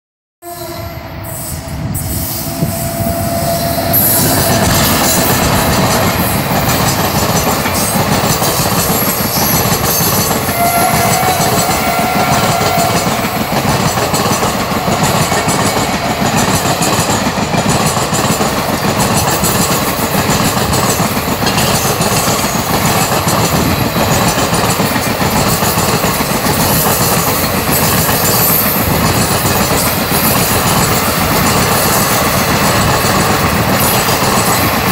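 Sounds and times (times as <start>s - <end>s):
train wheels rumbling on rails: 0.6s - 34.9s.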